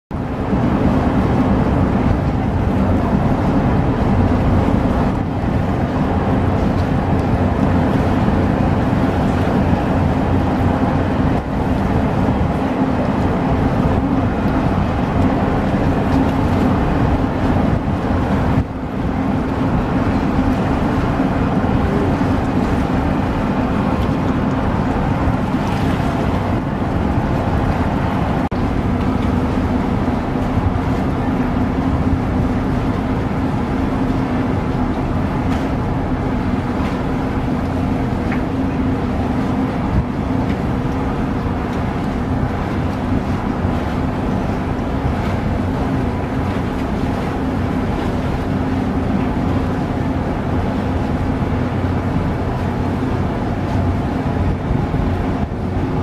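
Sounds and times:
boat engine drone: 0.1s - 56.0s
wind on microphone: 0.1s - 56.0s.

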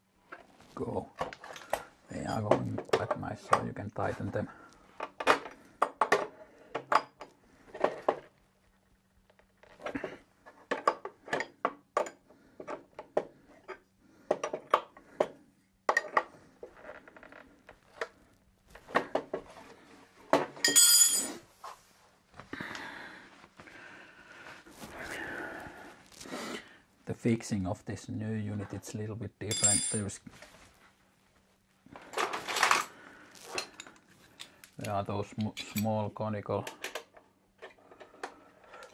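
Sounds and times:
metallic jangle: 20.6s - 21.4s, 29.5s - 30.1s
soft rustling: 21.3s - 27.1s, 30.1s - 34.4s.

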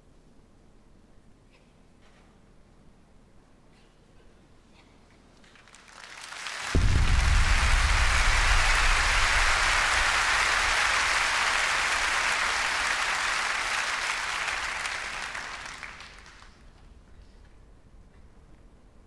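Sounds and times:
audience applauding: 5.6s - 16.7s.

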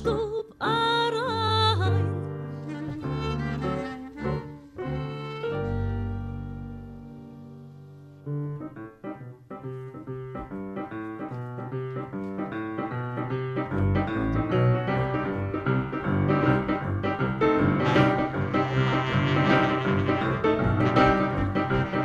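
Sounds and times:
grand piano repeated notes: 8.3s - 22.0s
band instruments: 16.2s - 22.0s.

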